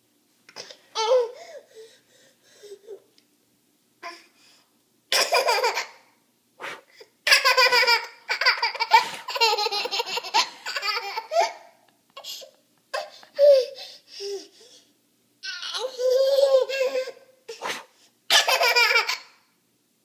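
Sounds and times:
toddler laughing: 0:05.2 - 0:06.0, 0:07.3 - 0:14.5, 0:15.4 - 0:17.2, 0:18.3 - 0:19.3.

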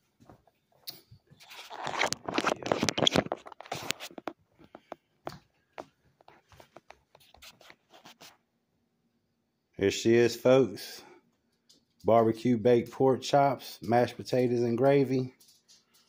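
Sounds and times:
hands rubbing on phone microphone: 0:01.4 - 0:05.0, 0:05.8 - 0:08.4.

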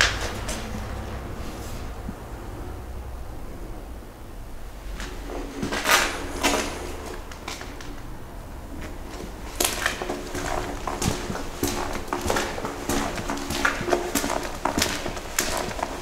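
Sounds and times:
footsteps on gritty concrete: 0:04.9 - 0:08.1, 0:08.7 - 0:16.0.

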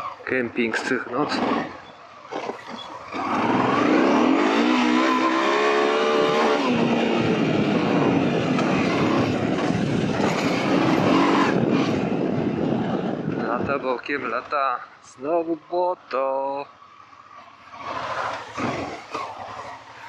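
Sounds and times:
motorcycle engine accelerating: 0:00.0 - 0:13.7, 0:17.0 - 0:20.0
wind noise: 0:02.5 - 0:14.4.

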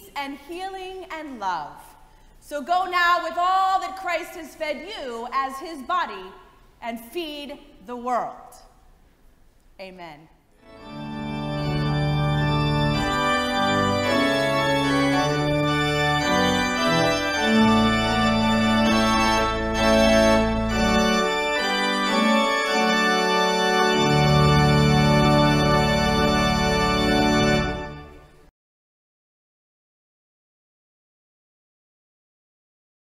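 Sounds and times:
church organ chords: 0:10.6 - 0:28.5.

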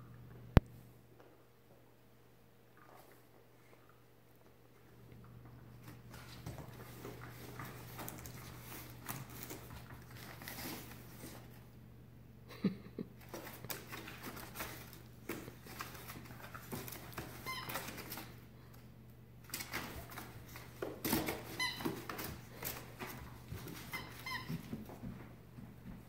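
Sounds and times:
puppy rustling among toys: 0:02.8 - 0:11.8, 0:13.2 - 0:26.0
high-pitched squeaks: 0:23.7 - 0:24.8.

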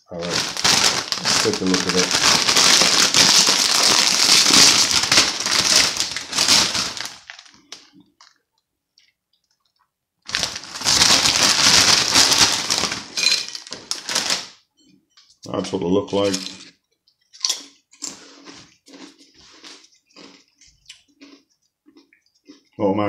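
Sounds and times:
crisp packet crinkling: 0:00.0 - 0:08.4, 0:09.4 - 0:14.6.

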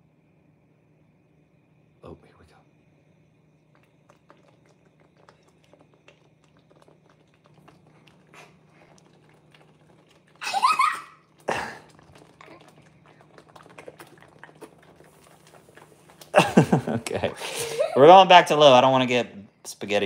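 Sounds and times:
low steady hum: 0:00.0 - 0:20.0
sauce bubbling and popping: 0:03.2 - 0:19.6
child squealing: 0:10.4 - 0:11.2.

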